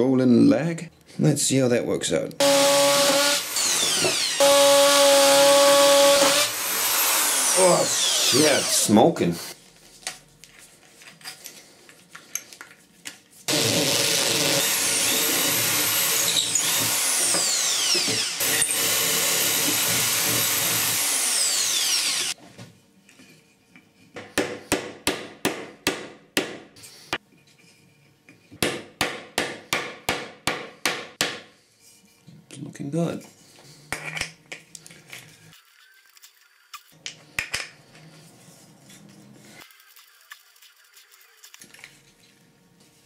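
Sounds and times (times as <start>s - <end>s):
electric drill boring into wood: 2.4s - 8.9s, 13.5s - 22.4s.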